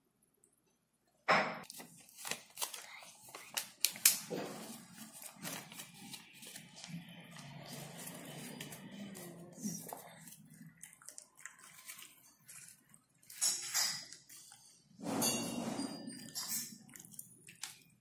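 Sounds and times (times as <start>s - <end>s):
paper rustling and scraping: 1.6s - 10.4s.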